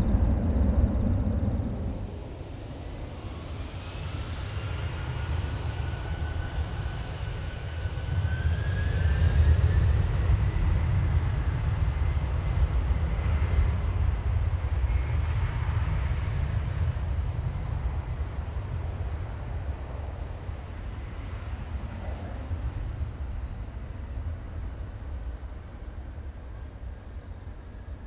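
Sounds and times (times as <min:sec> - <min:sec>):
turbine whine rising in pitch: 0:00.0 - 0:03.7
jet engines throttling up: 0:00.0 - 0:04.6.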